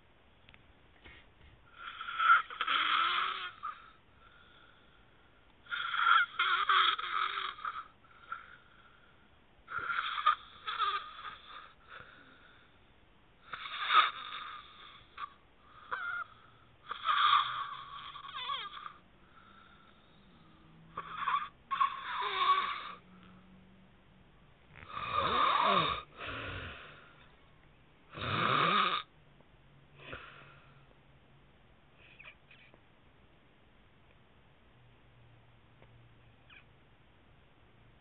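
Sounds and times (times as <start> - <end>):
man snoring: 1.7 - 3.8, 5.7 - 8.4, 9.7 - 12.1, 13.4 - 23.0, 24.8 - 27.0, 28.1 - 29.1.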